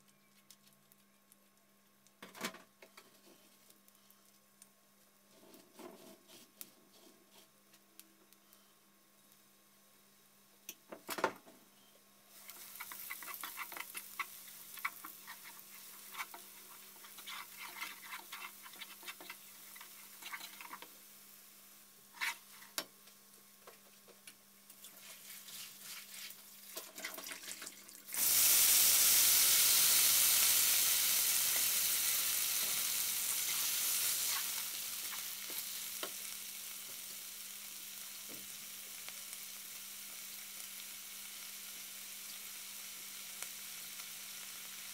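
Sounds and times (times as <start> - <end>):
vegetables sizzling in hot oil: 12.2 - 23.6, 24.4 - 44.9
garlic crackling in oil: 12.3 - 20.9, 24.2 - 44.9
spatula scraping wok: 12.4 - 20.9, 22.0 - 22.8, 24.8 - 27.2.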